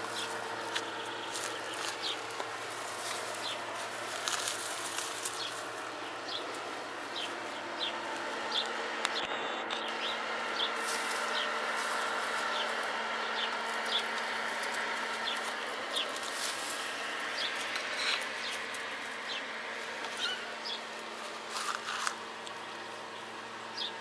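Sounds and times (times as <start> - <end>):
faint hum: 0.0 - 24.0
small bird chirping: 20.1 - 20.9.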